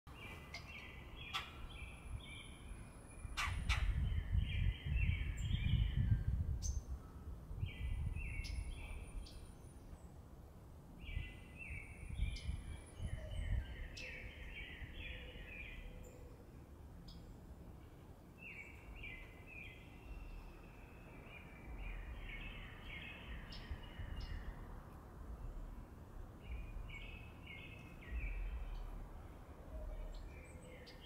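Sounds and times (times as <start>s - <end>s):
bird singing: 0.1s - 10.2s, 11.0s - 31.0s
low rumble: 21.6s - 27.3s.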